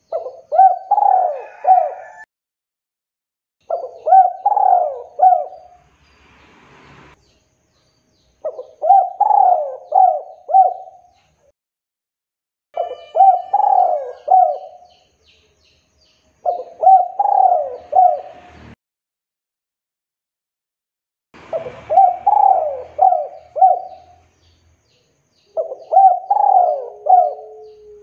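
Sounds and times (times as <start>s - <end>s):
spotted dove cooing: 0.1s - 2.2s, 3.7s - 5.8s, 8.4s - 11.1s, 12.8s - 14.8s, 16.5s - 18.3s, 21.5s - 24.2s, 25.6s - 28.0s.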